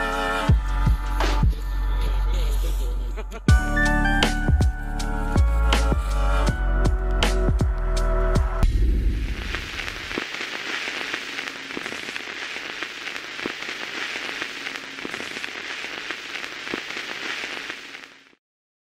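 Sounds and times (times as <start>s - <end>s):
crackling hiss with sharp clicks: 9.1s - 18.4s.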